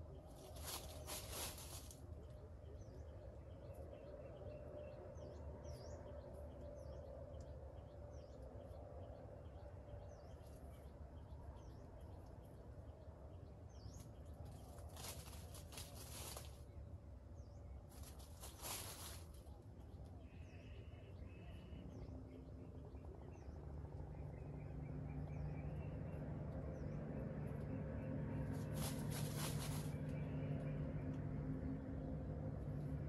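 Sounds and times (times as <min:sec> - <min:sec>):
low background rumble: 0:00.0 - 0:33.0
small birds chirping: 0:00.0 - 0:33.0
rustling: 0:00.3 - 0:02.1, 0:14.0 - 0:16.7, 0:17.9 - 0:19.6, 0:28.4 - 0:30.3.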